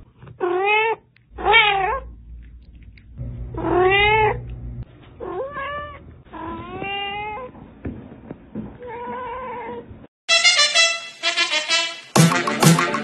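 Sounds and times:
cat meowing: 0.4 - 2.1, 3.6 - 4.4, 5.2 - 7.5
music: 10.3 - 13.0.

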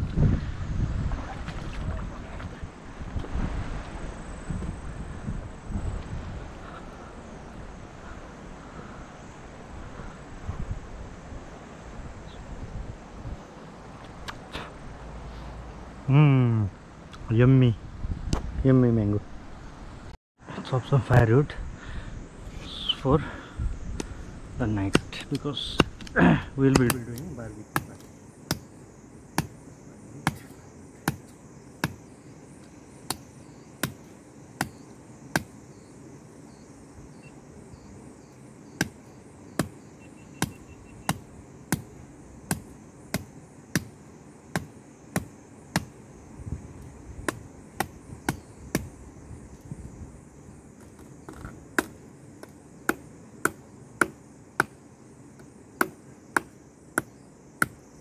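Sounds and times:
blade chopping firewood: 24.8 - 28.7, 30.2 - 32.0, 33.0 - 35.6, 40.4 - 41.9, 42.5 - 43.9, 44.5 - 46.0, 47.2 - 48.9, 51.3 - 54.8, 55.4 - 57.8.

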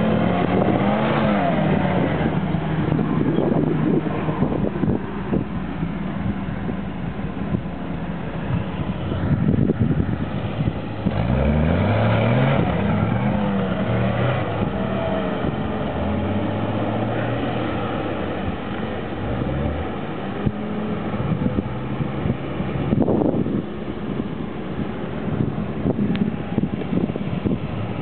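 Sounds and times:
engine revving under load: 0.0 - 5.4, 9.2 - 23.6.

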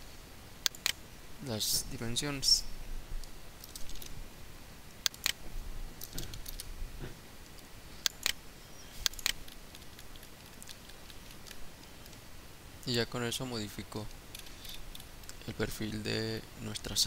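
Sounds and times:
computer mouse clicks: 0.6 - 1.0, 3.2 - 4.1, 5.0 - 5.4, 7.4 - 8.4, 9.0 - 12.2.

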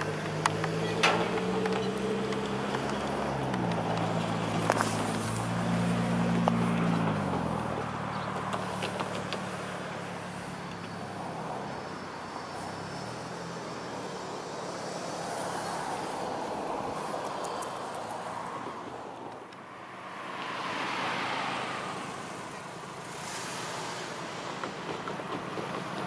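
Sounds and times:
sharp clicks of train wheels: 0.0 - 5.4, 7.8 - 11.0, 22.9 - 26.0
freight cars rolling: 0.0 - 19.0, 21.8 - 26.0
diesel locomotive engine drone: 0.0 - 26.0.

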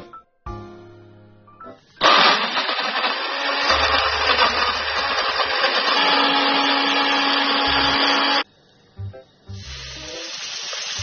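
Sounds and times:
blender motor running: 2.0 - 8.4.

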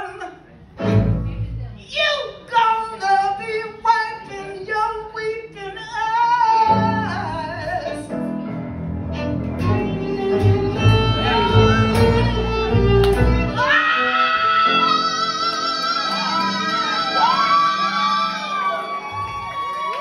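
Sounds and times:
soul band playing: 6.6 - 19.0
upright bass line: 9.1 - 13.6
person singing: 10.0 - 18.7.

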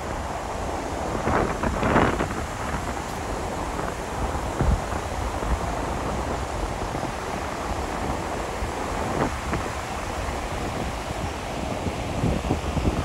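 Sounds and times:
ocean surf washing in: 0.0 - 13.0
wind buffeting microphone: 0.0 - 13.0.

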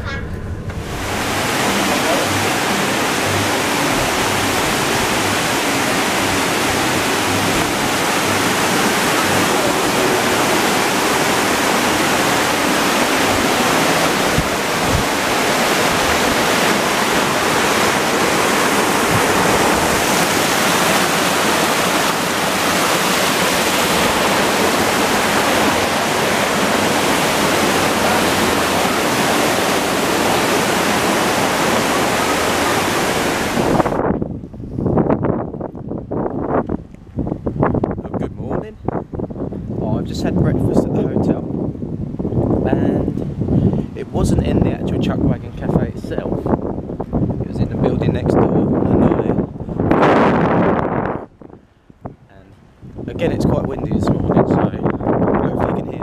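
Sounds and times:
waterfall rushing: 0.0 - 34.0.

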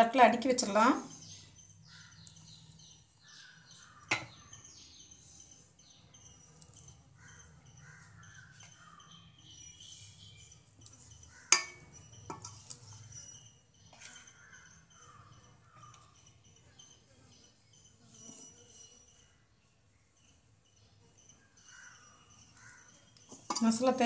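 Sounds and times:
birds chirping: 0.0 - 24.0
steel dishes knocking: 11.5 - 12.6, 23.3 - 23.9.

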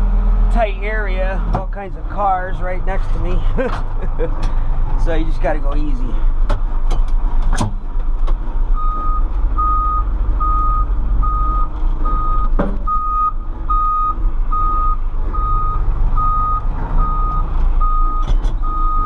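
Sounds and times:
diesel engine running: 0.0 - 19.0
reverse alarm beeping: 8.8 - 19.0.

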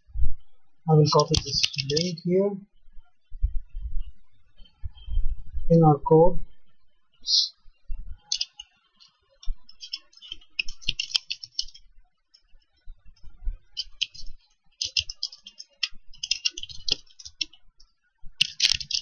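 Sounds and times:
typing on computer keyboard: 9.7 - 11.8, 13.8 - 17.6, 18.4 - 19.0.

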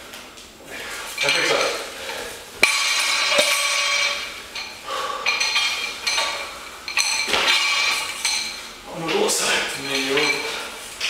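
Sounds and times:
barbell dropped on floor: 2.6 - 4.4, 5.3 - 8.6
metallic ringing of bar: 2.6 - 10.6.

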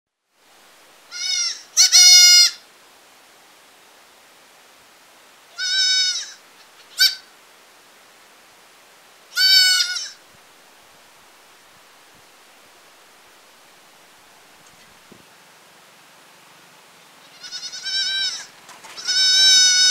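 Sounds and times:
goat kid bleating: 1.1 - 2.6, 5.5 - 7.3, 9.3 - 10.2, 17.2 - 19.9.

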